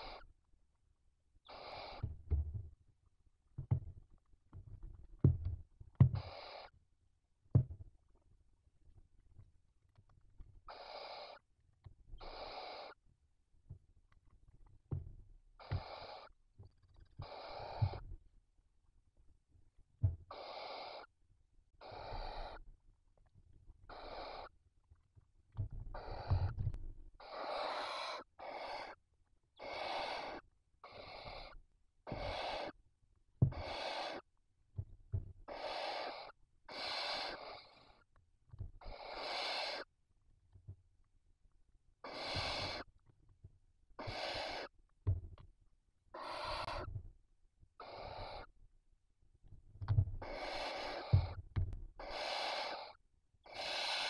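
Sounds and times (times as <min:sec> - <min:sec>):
owl chicks hissing: 0:00.0 - 0:00.3, 0:01.4 - 0:02.1, 0:06.2 - 0:06.7, 0:10.7 - 0:11.4, 0:12.2 - 0:13.0, 0:15.6 - 0:16.3, 0:17.2 - 0:18.0, 0:20.3 - 0:21.1, 0:21.8 - 0:22.6, 0:23.9 - 0:24.5, 0:25.9 - 0:29.0, 0:29.6 - 0:32.8, 0:33.5 - 0:34.3, 0:35.4 - 0:38.0, 0:38.8 - 0:39.9, 0:42.0 - 0:42.9, 0:44.0 - 0:44.8, 0:46.1 - 0:46.9, 0:47.8 - 0:48.5, 0:50.2 - 0:51.4, 0:52.0 - 0:54.0.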